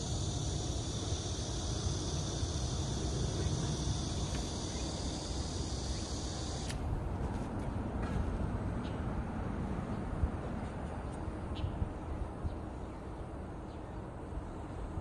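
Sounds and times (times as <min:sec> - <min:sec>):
insects trilling: 0:00.0 - 0:06.8.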